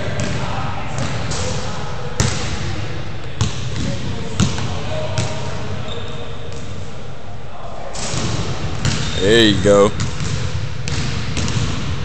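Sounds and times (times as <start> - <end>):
steady background noise: 0.0 - 12.0
basketball bouncing on court floor: 0.1 - 1.2, 3.4 - 5.4, 8.2 - 9.2, 9.9 - 12.0.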